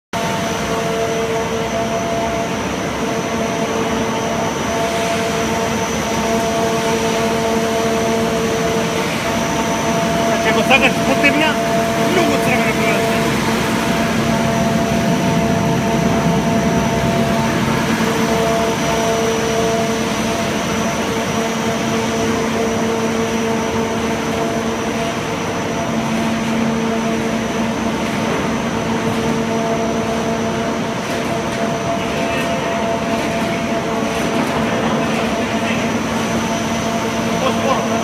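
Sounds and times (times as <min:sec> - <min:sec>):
machinery droning: 0:00.2 - 0:38.0.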